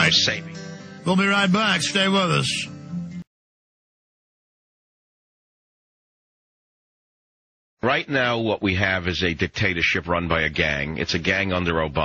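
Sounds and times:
radio broadcast audio: 0:01.1 - 0:02.7.

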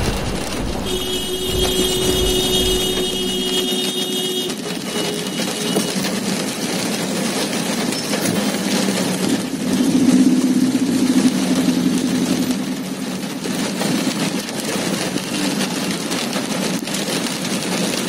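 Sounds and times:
high-pitched tone: 0:00.0 - 0:05.4
rain: 0:00.0 - 0:18.0
road and engine noise in vehicle: 0:00.0 - 0:18.0.

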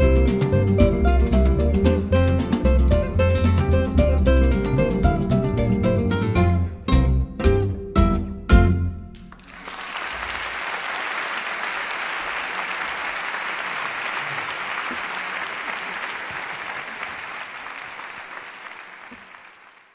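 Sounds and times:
audience applauding: 0:09.3 - 0:19.9.

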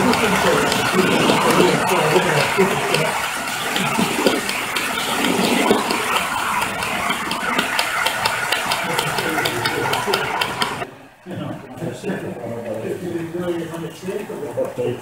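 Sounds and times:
model wagon wheels rumbling on rails: 0:00.0 - 0:10.9
wheels clicking over track joints: 0:00.0 - 0:10.9.

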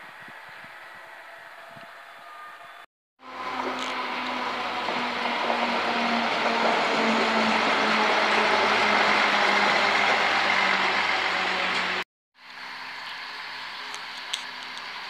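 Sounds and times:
train wheels rumbling on rails: 0:00.0 - 0:12.0.

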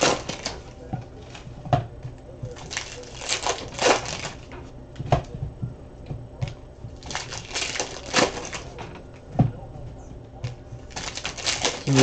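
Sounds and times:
foil wrappers tearing and crinkling: 0:00.0 - 0:00.6, 0:02.6 - 0:04.5, 0:07.0 - 0:08.8, 0:10.9 - 0:12.0.

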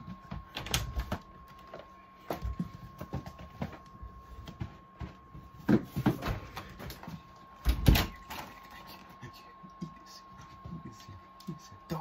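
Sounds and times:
cardboard box rustling and knocking: 0:04.5 - 0:06.6.

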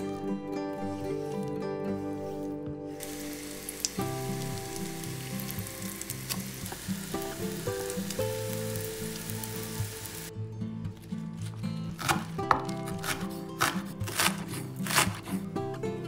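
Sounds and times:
soft background music: 0:00.0 - 0:16.0
patties sizzling in hot oil: 0:03.0 - 0:10.3.

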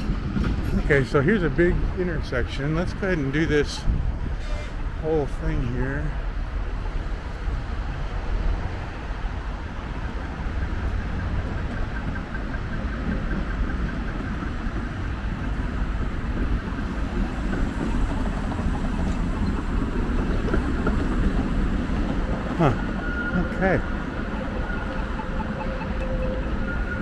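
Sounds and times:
low traffic rumble: 0:00.0 - 0:27.0
trams passing: 0:00.0 - 0:27.0
cars passing: 0:04.0 - 0:27.0.

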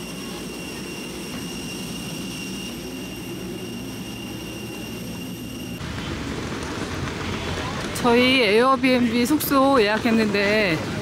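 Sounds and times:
jet engines whining: 0:00.0 - 0:07.9.

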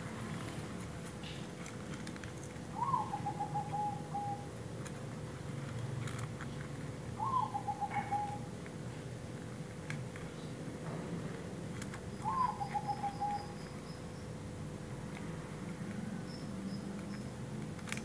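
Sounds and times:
bird calling: 0:02.7 - 0:04.6, 0:07.2 - 0:08.6, 0:12.1 - 0:14.3.

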